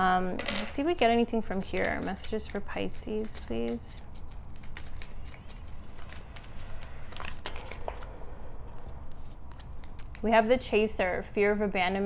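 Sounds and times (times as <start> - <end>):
low steady hum: 0.0 - 12.0
cards being shuffled: 1.3 - 10.3.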